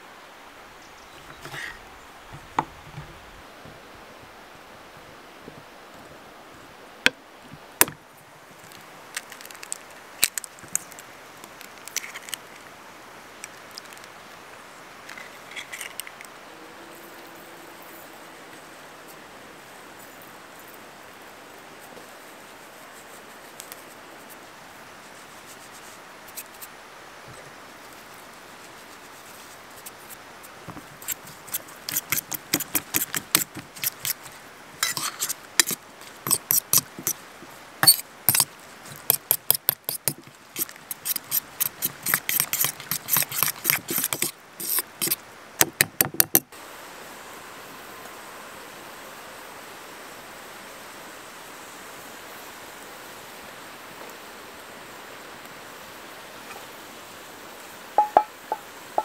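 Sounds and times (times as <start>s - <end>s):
fork clinking in metal bowl: 34.8s - 37.2s.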